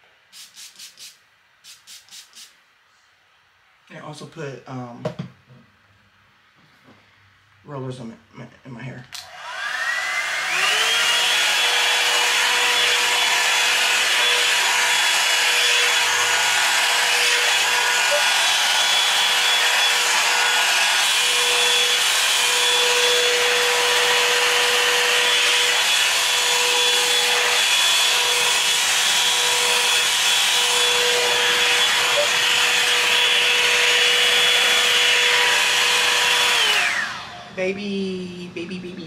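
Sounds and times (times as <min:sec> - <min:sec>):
hair dryer running: 0:00.4 - 0:02.5, 0:09.1 - 0:37.8
hair dryer fan spinning down: 0:09.1 - 0:37.7.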